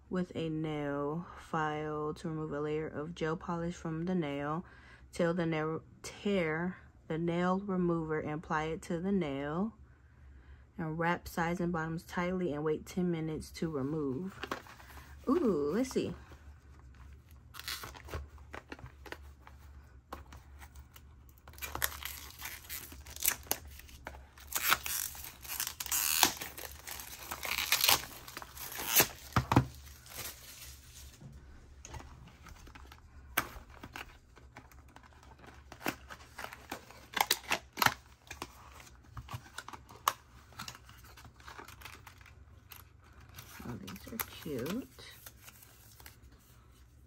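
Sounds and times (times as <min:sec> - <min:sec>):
packaging torn and crinkled: 0:17.5 - 0:19.2, 0:21.3 - 0:31.2, 0:31.9 - 0:46.2.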